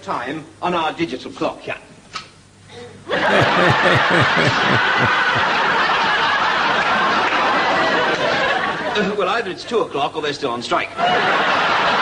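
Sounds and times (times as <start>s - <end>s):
audience laughing: 3.1s - 9.2s, 11.0s - 12.0s
man laughing: 3.2s - 5.6s.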